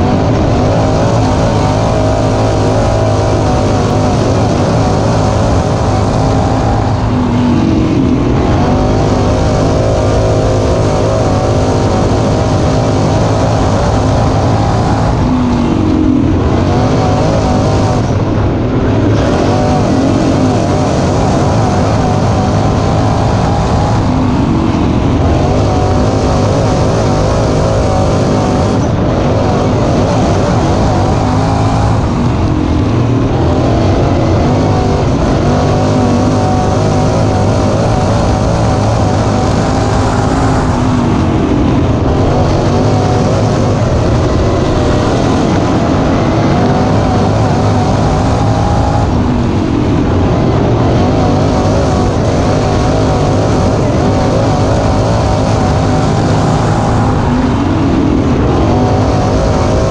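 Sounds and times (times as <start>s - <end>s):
race car engines roaring: 0.0s - 59.9s.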